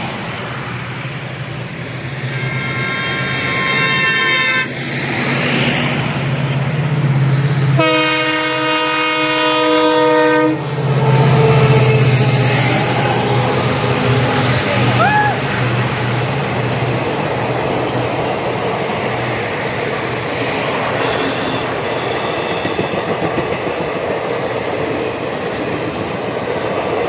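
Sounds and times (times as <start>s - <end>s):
train rumble: 0.0s - 27.0s
train horn blasts: 2.2s - 4.8s, 7.8s - 15.0s, 21.0s - 23.1s.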